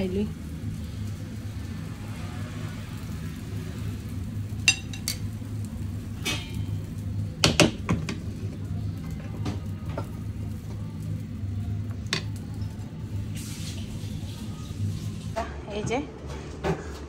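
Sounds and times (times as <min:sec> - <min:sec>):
tongs clinking on metal and plate: 0:04.6 - 0:05.3, 0:06.2 - 0:06.8.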